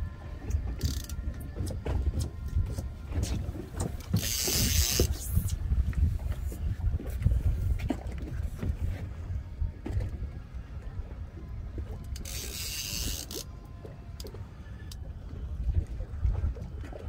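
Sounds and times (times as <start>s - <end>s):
wind rumbling on microphone: 0.0s - 17.0s
fishing reel clicking: 0.5s - 3.3s, 4.0s - 5.6s, 12.0s - 13.5s.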